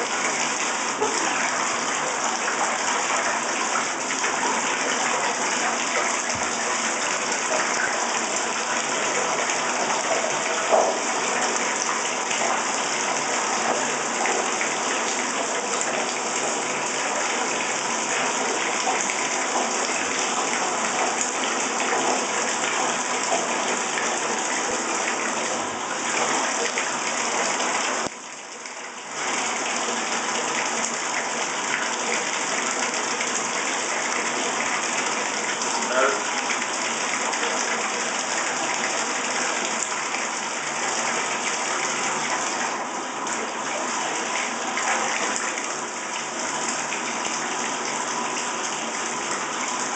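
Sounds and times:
water running into a bathtub: 0.0 - 49.9.

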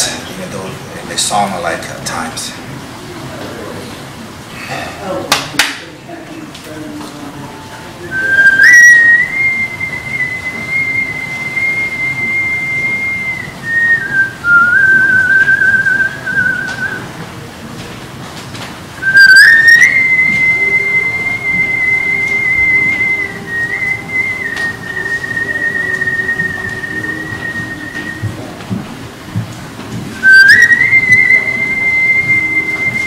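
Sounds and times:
man whistling long notes: 8.0 - 17.1, 19.0 - 28.6, 30.2 - 33.0.

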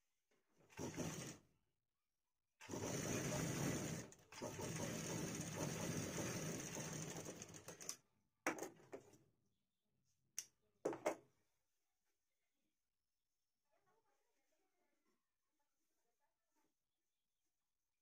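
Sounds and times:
sewing machine stitching: 0.7 - 1.4, 2.6 - 8.0.

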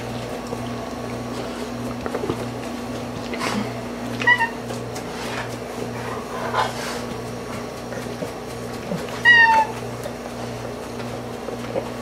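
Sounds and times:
cat meowing: 9.2 - 9.8.

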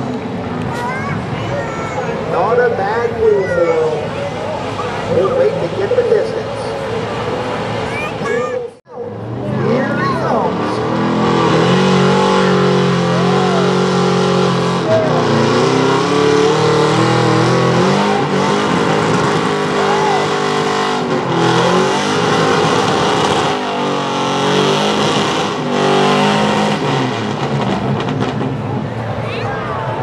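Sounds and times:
pickup engine revving hard: 9.1 - 28.9.

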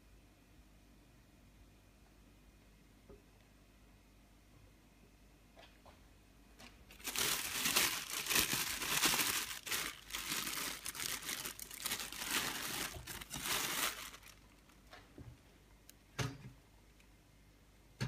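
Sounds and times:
plastic bag crinkling: 6.7 - 15.0.

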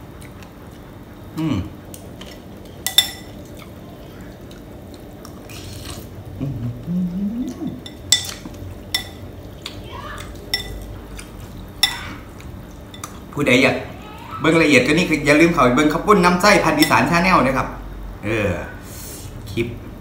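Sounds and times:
man humming: 1.3 - 1.8, 6.3 - 7.8
cutlery clinking on ceramic bowl: 2.2 - 3.4, 7.7 - 10.8, 16.8 - 17.1.

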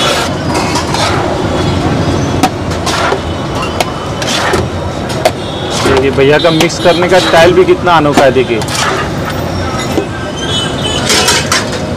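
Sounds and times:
metal plates scraping on griddle: 0.0 - 1.3, 11.0 - 11.8.

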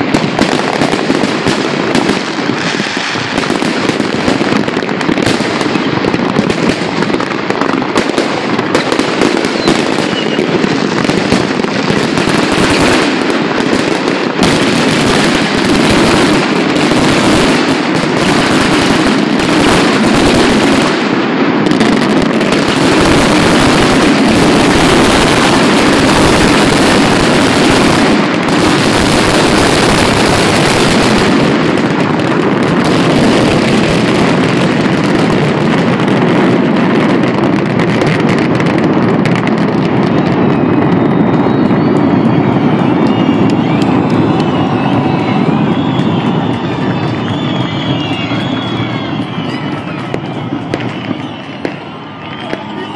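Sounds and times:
fireworks bangs and crackle: 0.0 - 52.9.

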